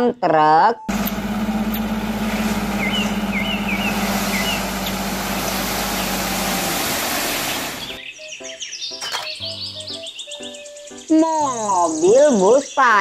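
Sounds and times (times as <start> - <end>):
dump truck engine running: 0.9 - 8.0
soil sliding out with hiss: 0.9 - 8.0
birds chirping: 0.9 - 13.0.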